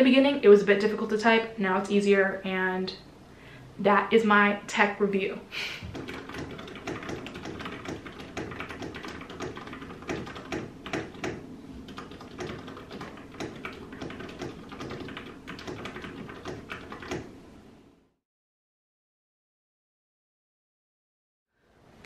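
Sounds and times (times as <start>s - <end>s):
fast typing on mechanical keyboard: 5.9s - 17.3s.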